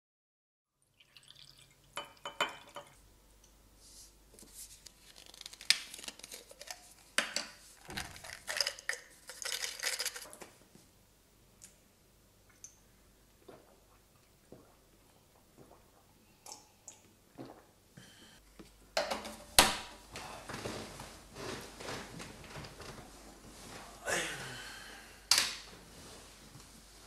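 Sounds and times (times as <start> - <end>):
plastic cap twisting: 4.9 - 10.4.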